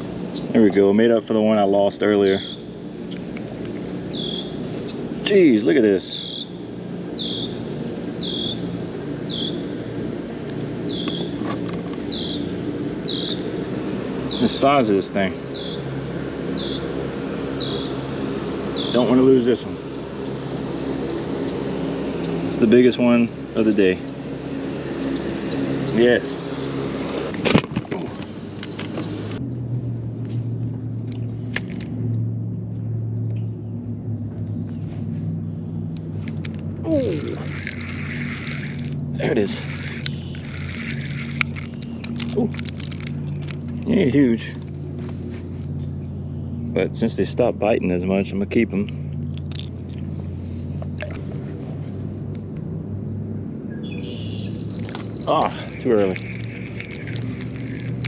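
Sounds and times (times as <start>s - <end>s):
distant boat motor droning: 0.0s - 58.0s
steady low hum: 0.0s - 58.0s
cricket chirping: 4.1s - 5.0s, 6.2s - 7.6s, 8.2s - 9.6s, 10.8s - 11.4s, 12.0s - 13.4s, 36.9s - 43.6s, 53.8s - 58.0s.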